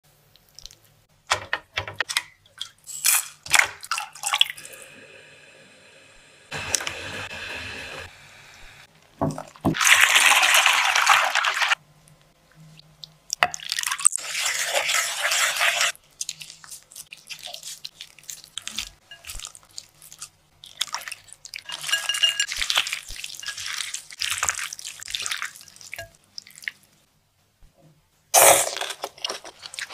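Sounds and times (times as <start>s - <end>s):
water pouring and splashing: 9.2s - 11.8s, 13.6s - 26.9s.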